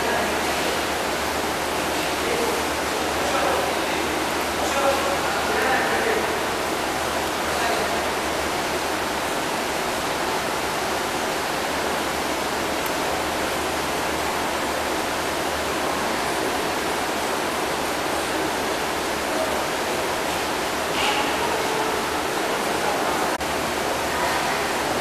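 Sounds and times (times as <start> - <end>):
aquarium water rushing hiss: 0.0 - 25.0.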